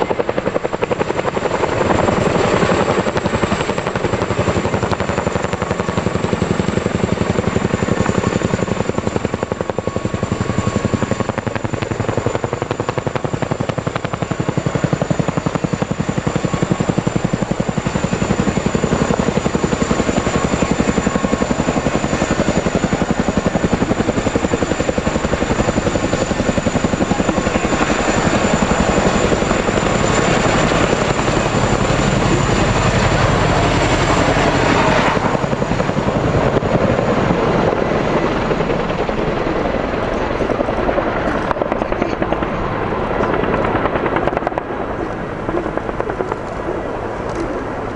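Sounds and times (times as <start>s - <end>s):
helicopter rotors beating: 0.0s - 47.9s.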